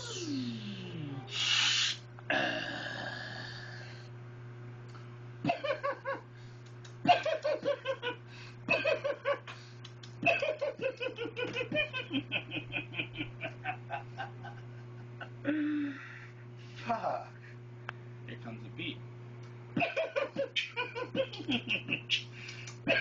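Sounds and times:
steady low hum: 0.0s - 23.0s
hearty laughter: 7.1s - 9.6s, 10.2s - 16.2s, 19.8s - 22.2s.

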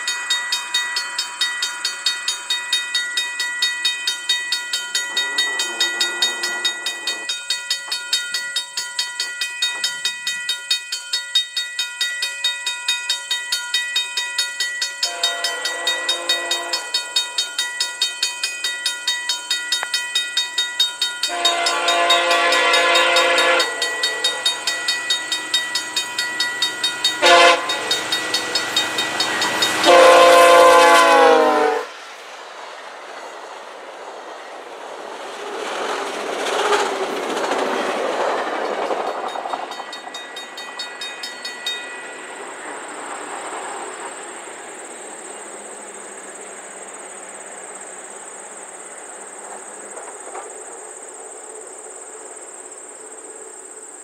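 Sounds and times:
train horn blasts: 15.0s - 17.0s, 21.2s - 24.8s, 27.0s - 28.2s, 29.4s - 31.9s.

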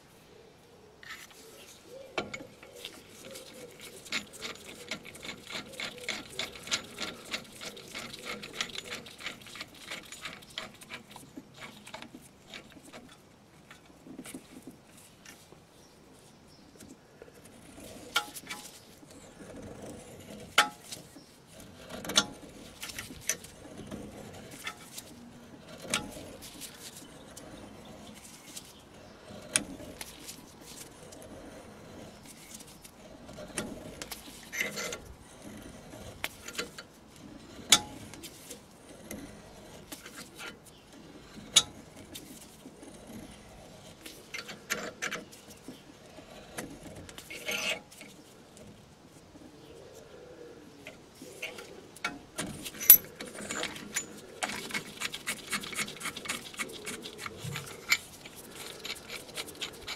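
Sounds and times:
low rubbing grind: 17.4s - 48.7s.

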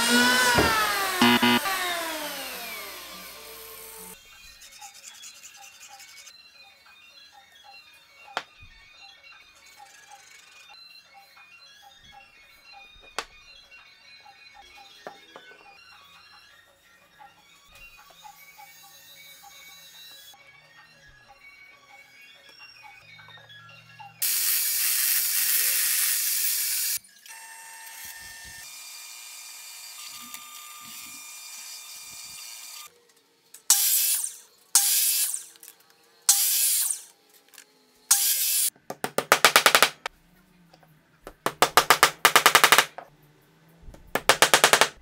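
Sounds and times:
miter saw cutting wooden dowel: 0.0s - 4.2s
power tools running on wood: 0.0s - 4.2s.

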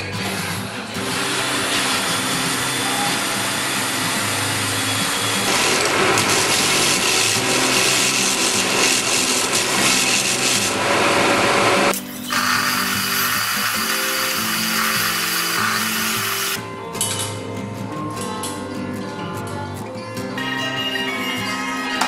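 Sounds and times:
belt sander grinding metal: 1.0s - 16.6s.

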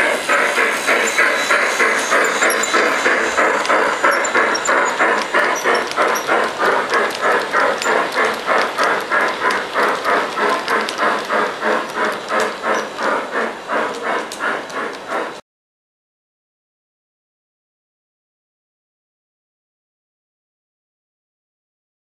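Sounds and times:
steam locomotive chuffing: 0.0s - 15.4s.

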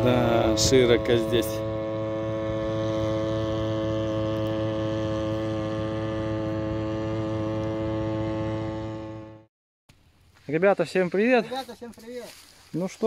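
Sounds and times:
boat motor humming: 0.0s - 9.5s.

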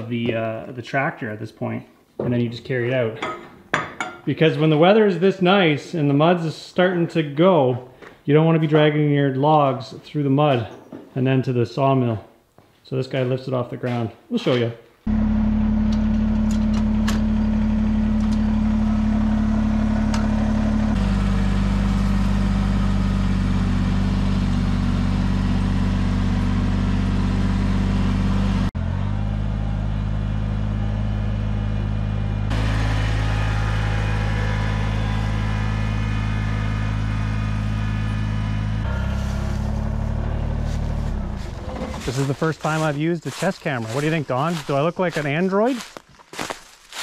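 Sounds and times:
tractor engine running: 15.1s - 47.0s.

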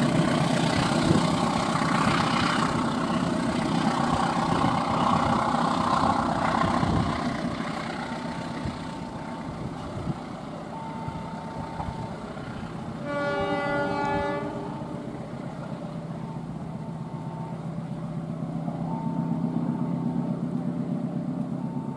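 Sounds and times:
diesel locomotive engine rumble: 0.0s - 21.9s
locomotive horn blast: 12.9s - 15.3s.

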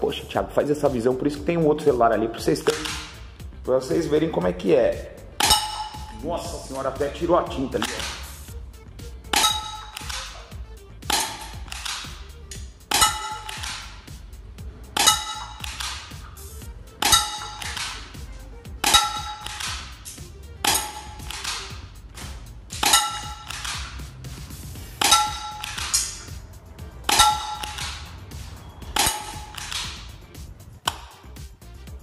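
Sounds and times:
airsoft pistol firing: 2.7s - 3.2s, 7.8s - 8.4s, 9.3s - 12.2s, 12.9s - 14.1s, 15.0s - 16.2s, 17.0s - 18.2s, 18.8s - 24.0s, 25.0s - 26.3s, 28.9s - 30.1s
pellet clanging on metal bowl: 22.7s - 23.7s.

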